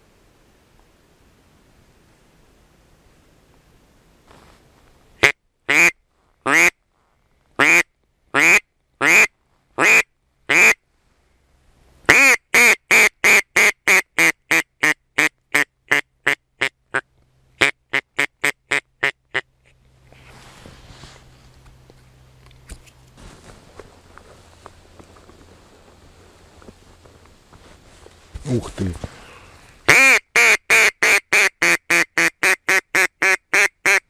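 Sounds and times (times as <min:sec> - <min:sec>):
faint rustling: 0:00.6 - 0:05.2, 0:06.0 - 0:08.2, 0:08.8 - 0:09.8, 0:10.8 - 0:12.1, 0:19.5 - 0:29.9
duck call quacking: 0:05.2 - 0:06.7, 0:07.6 - 0:10.8, 0:12.1 - 0:17.0, 0:17.6 - 0:19.5, 0:29.9 - 0:34.0.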